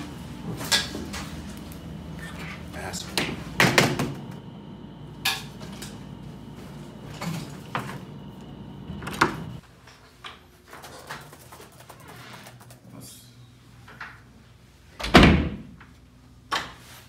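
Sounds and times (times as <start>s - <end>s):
steady hum: 0.0s - 9.7s.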